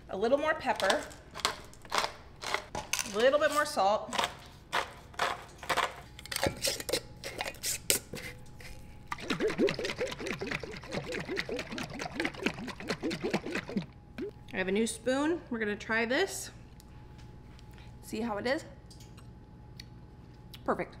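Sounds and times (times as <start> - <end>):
liquid sloshing rhythmically: 9.1 - 14.4.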